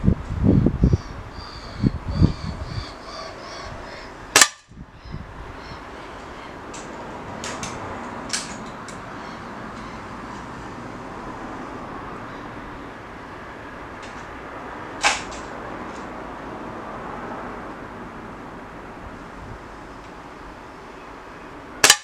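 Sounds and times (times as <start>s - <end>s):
air rifle shot: 4.3s - 4.7s.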